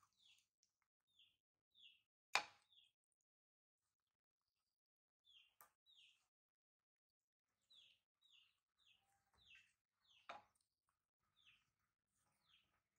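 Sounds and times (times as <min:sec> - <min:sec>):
faint high chirping calls: 0:07.7 - 0:10.3.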